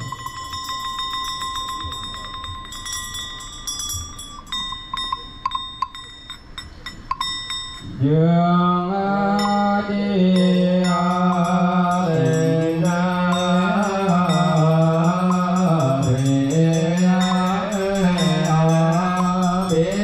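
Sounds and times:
hand bell ringing: 0:00.0 - 0:07.9, 0:10.3 - 0:20.0
low drawn-out chant: 0:07.8 - 0:20.0.

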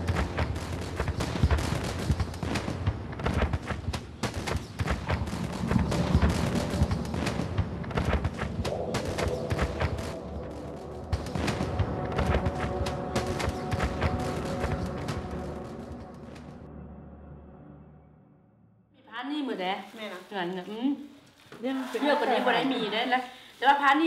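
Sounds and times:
rapid explosions and cracks: 0:00.0 - 0:16.7.

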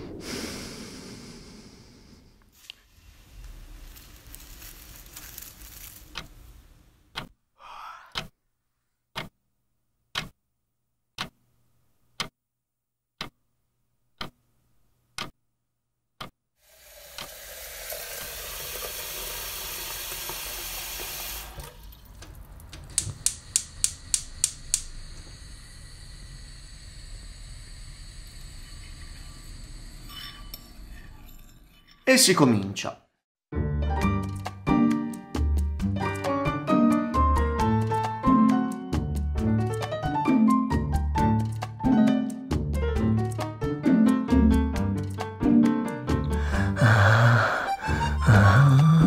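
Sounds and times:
clock ticking: 0:07.1 - 0:07.4, 0:08.1 - 0:08.4, 0:09.1 - 0:09.4, 0:10.1 - 0:10.4, 0:11.2 - 0:11.4, 0:12.1 - 0:12.4, 0:13.2 - 0:13.4, 0:14.2 - 0:14.4, 0:15.1 - 0:15.4, 0:16.2 - 0:16.4
sharp clicks: 0:09.1 - 0:09.3, 0:10.1 - 0:10.3, 0:14.2 - 0:14.4, 0:15.2 - 0:15.4, 0:22.2 - 0:24.9
water running from a tap: 0:16.6 - 0:29.5.

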